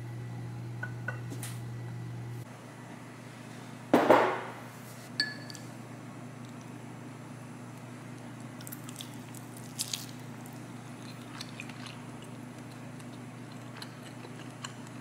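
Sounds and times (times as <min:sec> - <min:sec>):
steady low hum: 0:00.0 - 0:15.0
metal spoon clinking on bowl: 0:05.2 - 0:05.6.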